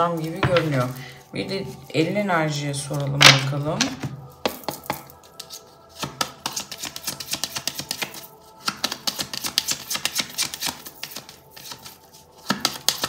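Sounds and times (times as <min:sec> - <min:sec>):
cards being shuffled by hand: 0:04.5 - 0:13.0.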